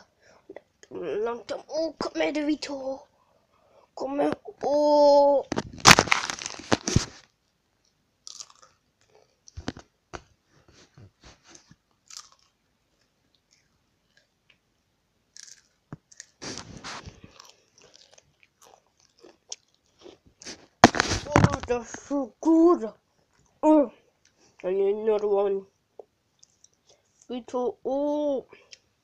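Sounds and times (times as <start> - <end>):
crunching and chewing chips: 5.8 - 9.6, 11.9 - 14.4, 15.3 - 21.4, 26.4 - 26.9.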